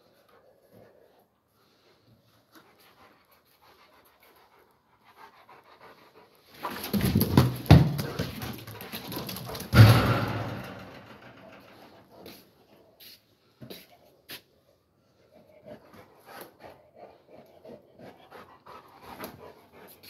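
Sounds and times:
dog panting: 0:00.0 - 0:07.0, 0:15.0 - 0:20.0
sharp knocks: 0:09.7 - 0:11.6.

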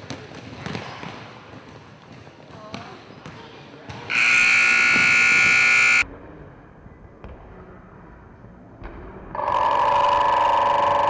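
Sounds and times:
loud steady multi-pitch tone: 0:04.1 - 0:06.0.

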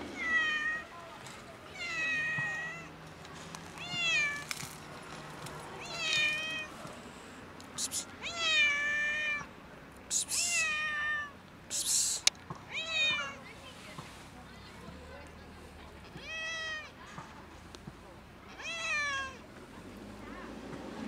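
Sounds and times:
cat meowing: 0:05.8 - 0:06.7, 0:08.2 - 0:09.5, 0:10.3 - 0:11.3, 0:12.7 - 0:13.4, 0:18.6 - 0:19.4.

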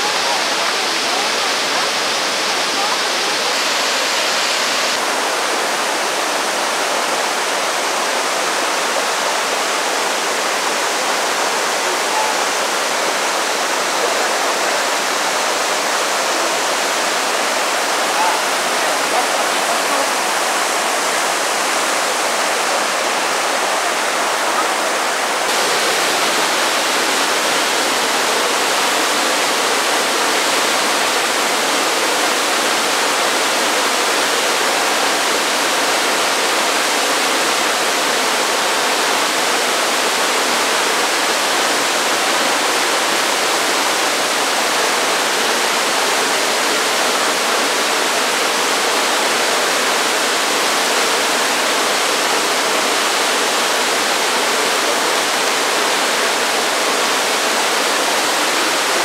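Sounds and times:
waterfall rushing water: 0:00.0 - 0:59.0.

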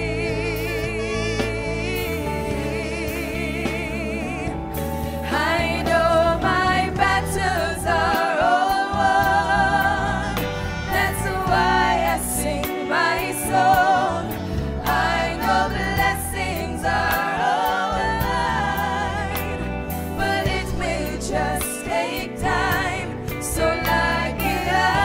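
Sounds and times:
band with bass and drums: 0:00.0 - 0:08.3, 0:08.9 - 0:25.0
woman singing with vibrato: 0:08.0 - 0:15.4.

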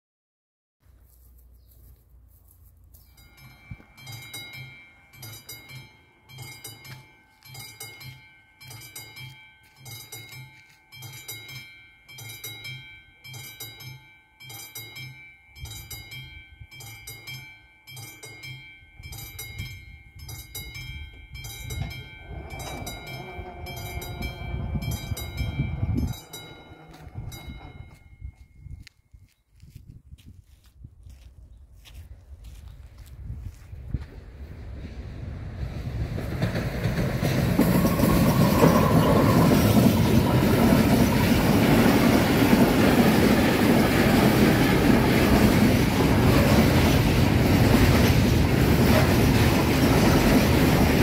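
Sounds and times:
level crossing bell ringing: 0:03.1 - 0:28.8
freight train rumble: 0:14.9 - 0:28.8, 0:33.0 - 0:51.0.

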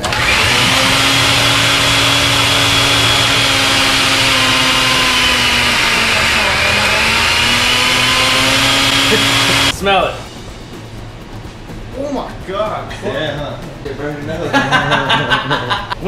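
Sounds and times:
blender motor running: 0:00.0 - 0:09.8.

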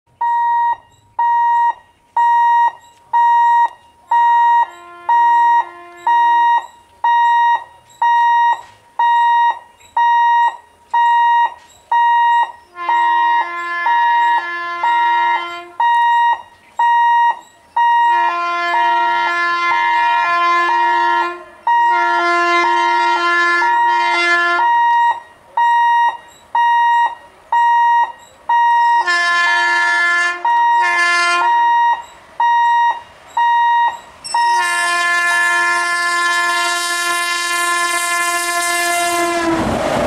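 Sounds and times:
level crossing alarm beeping: 0:00.2 - 0:18.9, 0:21.6 - 0:22.2, 0:23.7 - 0:29.2, 0:30.4 - 0:34.6
low horn tone: 0:04.3 - 0:06.8, 0:12.5 - 0:16.0, 0:17.9 - 0:24.9, 0:28.8 - 0:32.1, 0:32.9 - 0:39.8.

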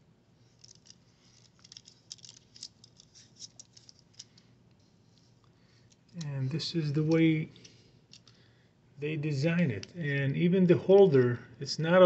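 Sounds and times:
plastic clicks and rattles: 0:00.6 - 0:04.5.

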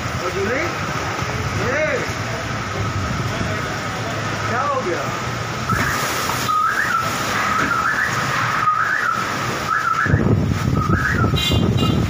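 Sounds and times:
storm wind rushing: 0:02.4 - 0:04.4, 0:07.1 - 0:12.0
high whistling tone: 0:05.7 - 0:11.4.

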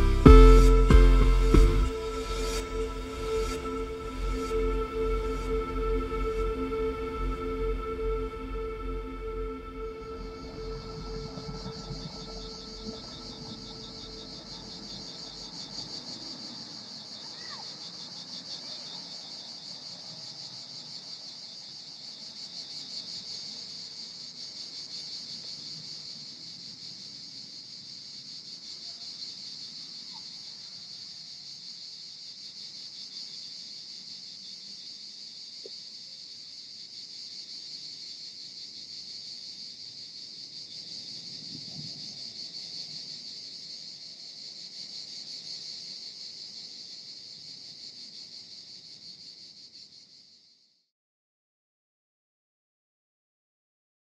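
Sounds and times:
faint low rumble: 0:00.0 - 0:15.7
insects trilling: 0:01.9 - 0:50.7.

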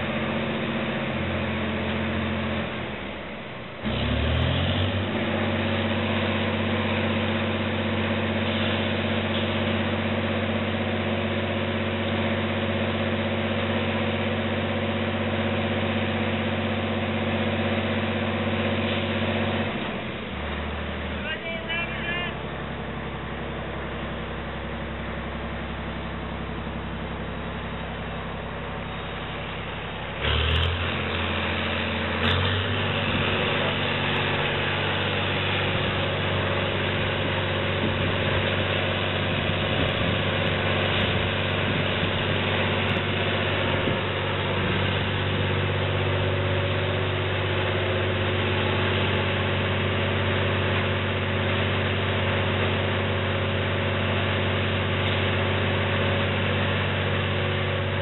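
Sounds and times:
large diesel engine running: 0:00.0 - 0:58.0.

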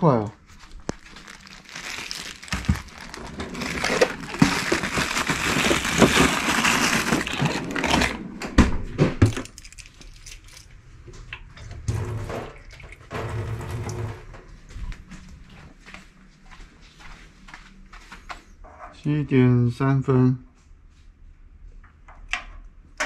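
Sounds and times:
plastic bag rustling: 0:00.5 - 0:08.2
refrigerator drawer pulled open: 0:02.6 - 0:09.4.

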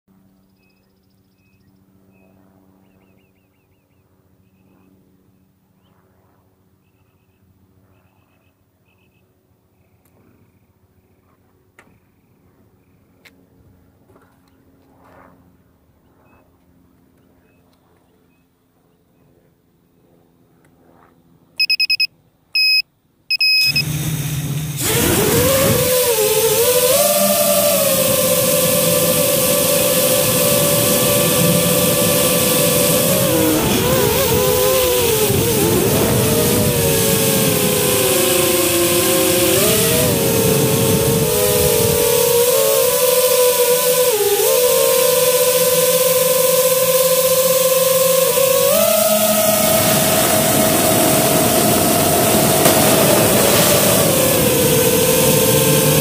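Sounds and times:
steady low hum: 0:00.1 - 0:56.0
drone propeller whine: 0:12.6 - 0:56.0
drone high beeps: 0:21.6 - 0:23.9.

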